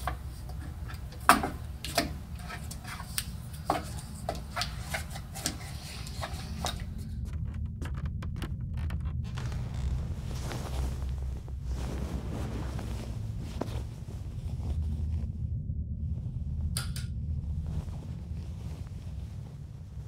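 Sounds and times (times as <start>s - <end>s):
low steady rumble: 0.0s - 20.0s
tape clicks and scrapes: 1.8s - 10.2s.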